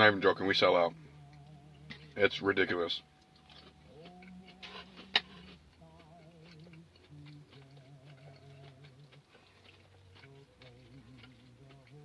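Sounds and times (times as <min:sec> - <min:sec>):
christmas music: 0:00.1 - 0:06.2
person chewing: 0:03.0 - 0:12.0.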